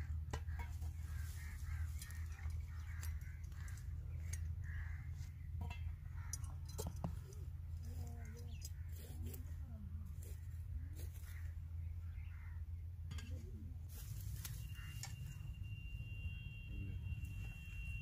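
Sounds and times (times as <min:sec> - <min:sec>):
crows cawing: 0:00.0 - 0:07.0, 0:10.8 - 0:11.6
steady low rumble: 0:00.0 - 0:18.0
metallic clicks of tongs and coals: 0:02.0 - 0:04.6, 0:06.2 - 0:07.4.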